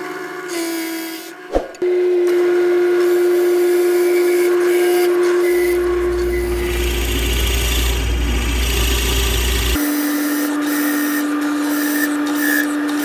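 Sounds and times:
drill press whining: 0:04.5 - 0:13.0
dust collector suction hiss: 0:05.4 - 0:09.8
drill bit boring into wood: 0:05.5 - 0:09.8.

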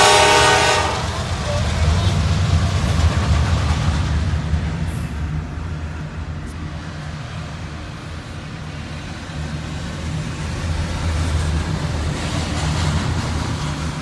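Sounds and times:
passing train rumble: 0:00.0 - 0:14.0.

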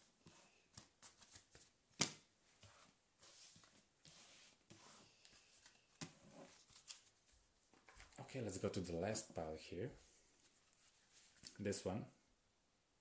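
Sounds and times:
cards sliding on cloth: 0:02.6 - 0:07.1.

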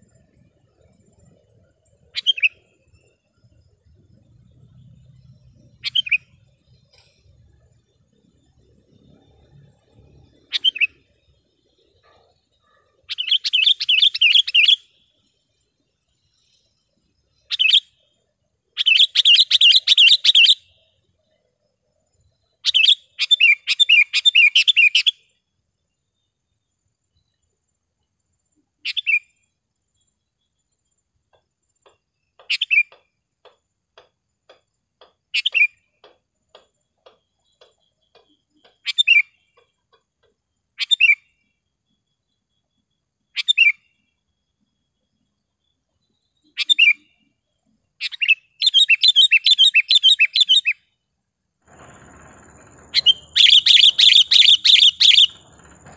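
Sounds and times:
bulbul singing: 0:04.5 - 0:15.0, 0:51.8 - 0:55.9.

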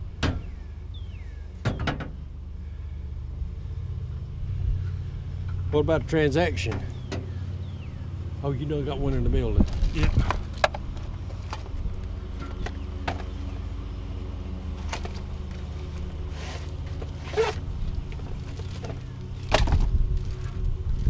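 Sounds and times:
radiator knocking and clunking: 0:00.0 - 0:00.6, 0:01.5 - 0:02.3, 0:05.4 - 0:08.0, 0:08.7 - 0:13.6, 0:14.8 - 0:20.5
steady low hum: 0:00.0 - 0:21.0.

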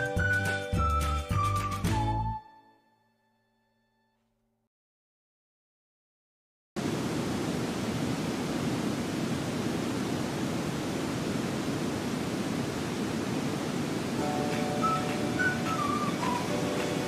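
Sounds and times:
steady rushing noise: 0:06.8 - 0:17.0.

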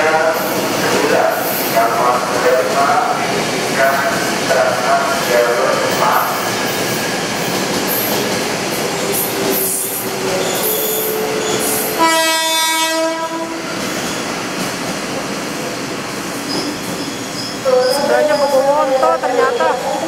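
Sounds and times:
train running: 0:00.0 - 0:20.0
train horn: 0:10.7 - 0:13.8.

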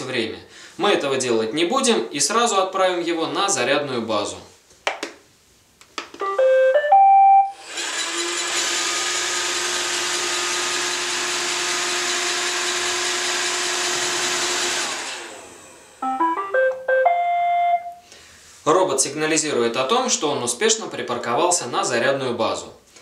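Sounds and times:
rising electronic tune: 0:06.2 - 0:07.6, 0:16.0 - 0:18.0.

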